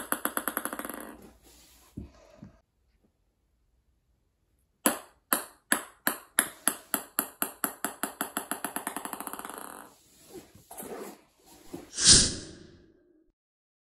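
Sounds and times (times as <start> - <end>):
ping pong ball bouncing on floor: 0.0 - 1.2, 4.8 - 10.0.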